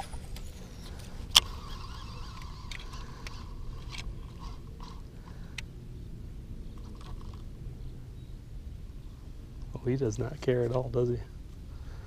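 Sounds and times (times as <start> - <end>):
reel spool spinning whine: 0.0 - 7.9
reel cranking ticks: 1.3 - 5.6
fishing reel click: 1.3 - 5.7.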